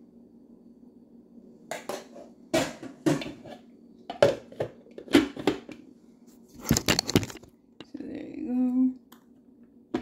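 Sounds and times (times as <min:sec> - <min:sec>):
objects knocking and clattering: 0:01.7 - 0:05.8, 0:06.6 - 0:07.9.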